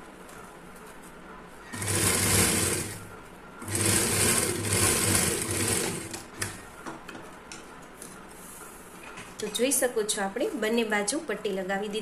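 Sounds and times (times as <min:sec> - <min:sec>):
industrial sewing machine stitching: 0:01.7 - 0:06.6.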